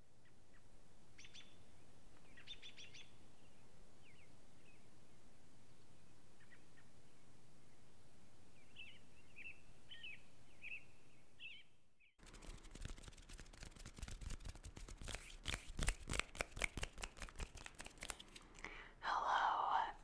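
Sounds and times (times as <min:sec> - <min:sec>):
small birds chirping: 0:00.1 - 0:11.8
hands rustling and tapping: 0:12.2 - 0:18.8.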